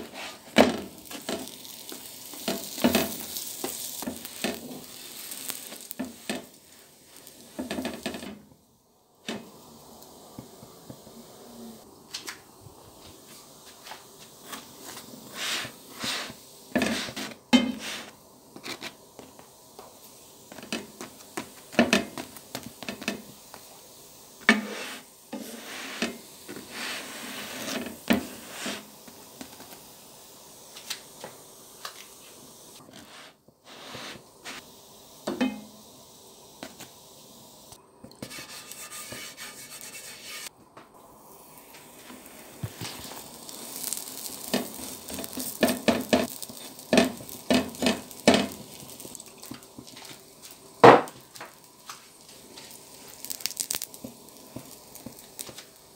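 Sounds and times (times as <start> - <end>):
flatbread scraping against pan: 24.5 - 28.9, 38.2 - 40.5
light knocks on pan: 50.8 - 51.2.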